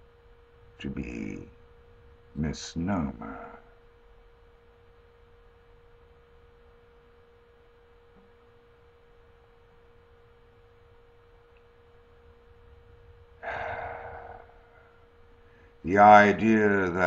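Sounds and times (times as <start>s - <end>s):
faint steady hum: 0.0s - 17.0s
man breathing out: 13.4s - 15.8s.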